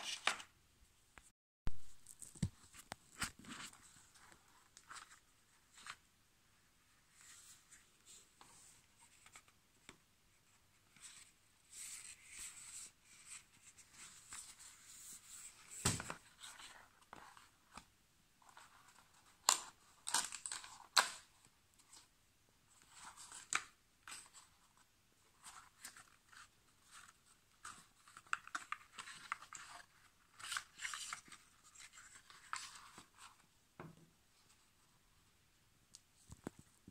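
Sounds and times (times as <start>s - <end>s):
cardboard and paper rustling: 22.7s - 33.5s.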